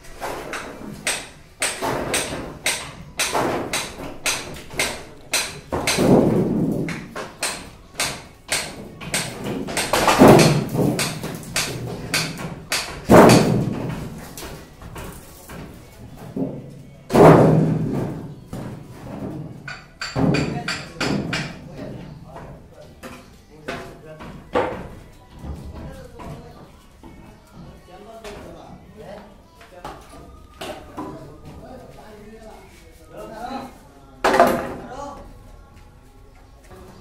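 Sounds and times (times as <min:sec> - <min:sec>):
knocks and bangs on wooden formwork: 0:00.2 - 0:26.4, 0:34.2 - 0:34.9.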